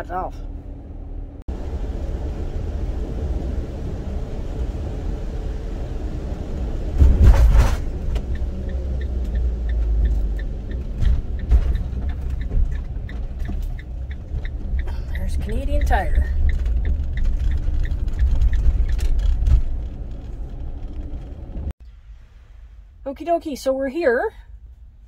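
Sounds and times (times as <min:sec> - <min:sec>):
van engine and road rumble: 0:00.0 - 0:25.0
quiet regular ticking: 0:08.0 - 0:21.7.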